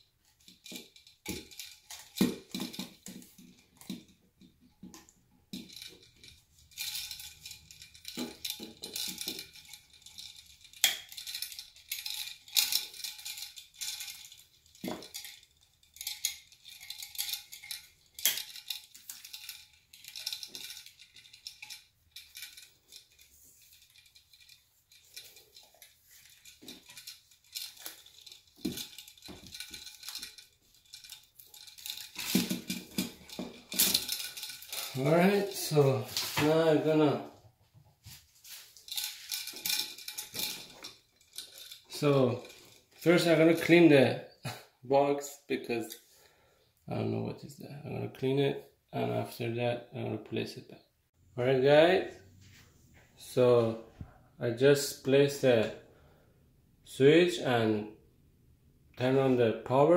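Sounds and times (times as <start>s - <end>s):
metal clicks scrapes and rattles: 4.8s - 36.9s, 38.5s - 43.8s.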